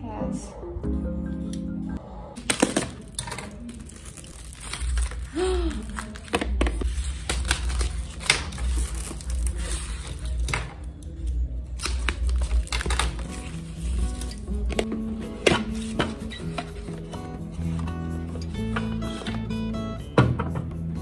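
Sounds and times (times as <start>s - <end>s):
plastic wrap crinkling: 2.4s - 10.7s, 11.8s - 14.9s
polystyrene foam crackling: 2.5s - 10.5s.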